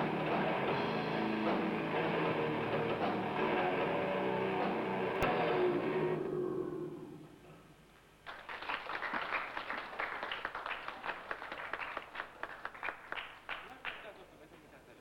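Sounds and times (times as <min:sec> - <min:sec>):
electric guitar chord ringing: 0:00.0 - 0:07.2
audience clapping: 0:08.2 - 0:14.2.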